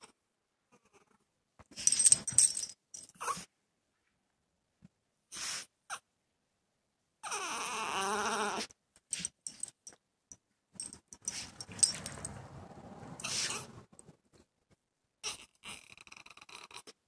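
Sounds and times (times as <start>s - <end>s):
dog whining: 7.2s - 8.7s, 13.2s - 13.8s
clicks and rustling: 10.8s - 12.5s
dog sniffing: 13.2s - 13.8s.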